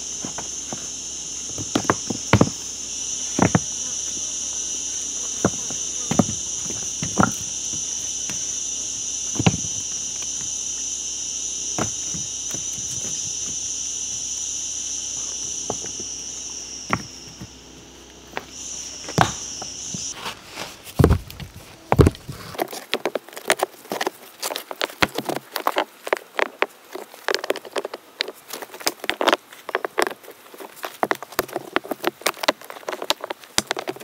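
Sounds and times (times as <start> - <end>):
heavy thumps: 0.0 - 10.7, 11.7 - 14.4, 15.2 - 16.2, 16.8 - 17.6, 18.3 - 22.6
insects buzzing: 0.0 - 34.0.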